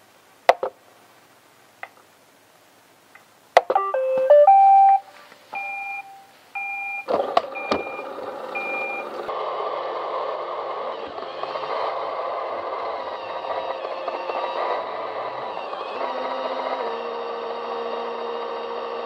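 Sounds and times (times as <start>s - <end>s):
electronic start-up beeps: 3.8s - 9.1s
vacuum motor and brushes running: 7.2s - 19.0s.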